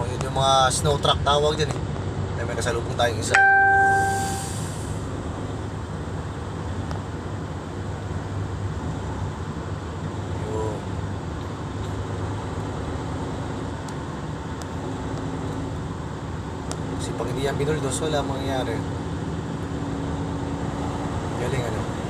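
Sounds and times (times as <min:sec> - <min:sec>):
road noise on wet road: 0:00.0 - 0:22.0
truck engine drone: 0:03.3 - 0:17.0.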